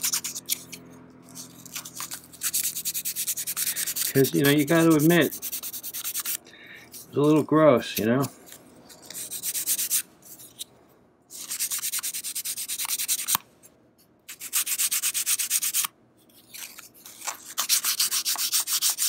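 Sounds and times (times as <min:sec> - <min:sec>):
sandpaper rubbing on wood: 0:00.0 - 0:00.6, 0:01.3 - 0:06.4, 0:09.2 - 0:10.0, 0:11.3 - 0:13.4, 0:14.3 - 0:15.9, 0:17.2 - 0:19.0.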